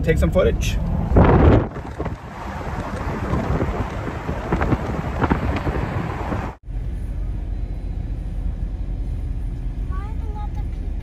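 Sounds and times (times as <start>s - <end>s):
road and engine noise: 0.0s - 11.0s
wind buffeting microphone: 0.5s - 6.6s.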